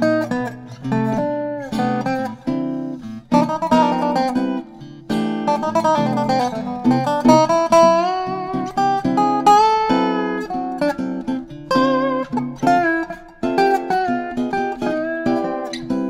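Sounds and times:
guitar chords strummed: 0.0s - 16.0s
slide steel guitar melody: 0.0s - 16.0s.

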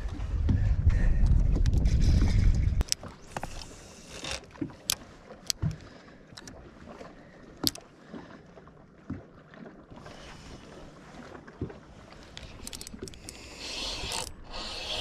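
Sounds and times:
faint wind and water hiss: 10.0s - 15.0s
fishing reel clicks and knocks: 12.4s - 15.0s.

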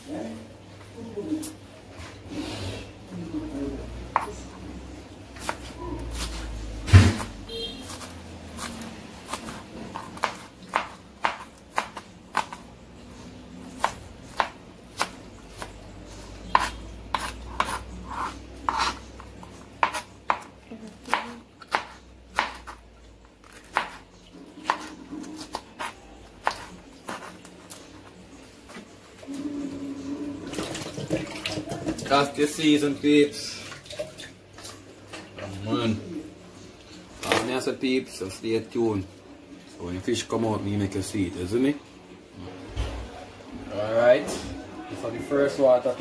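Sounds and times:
knife chopping on plastic board: 7.9s - 12.6s, 16.5s - 19.0s, 19.8s - 20.5s, 21.1s - 22.8s, 23.4s - 24.0s, 24.6s - 27.3s.

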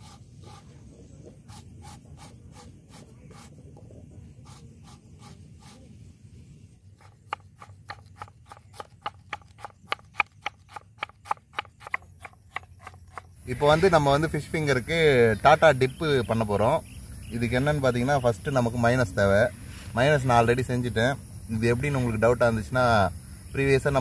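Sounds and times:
knife chopping onion on wooden board: 1.3s - 3.5s, 4.4s - 5.8s, 6.9s - 13.3s.

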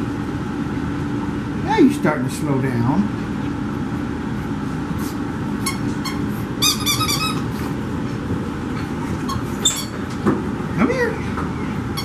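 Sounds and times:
steady background hum: 0.0s - 12.0s
dog toy squeaking: 5.6s - 7.5s, 9.2s - 10.1s.

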